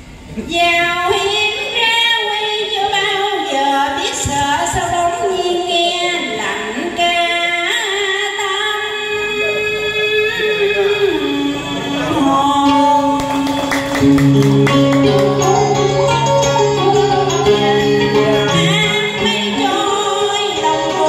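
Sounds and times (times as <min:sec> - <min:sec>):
woman singing into a microphone: 0:00.4 - 0:14.0, 0:15.0 - 0:21.0
backing track music: 0:10.5 - 0:21.0.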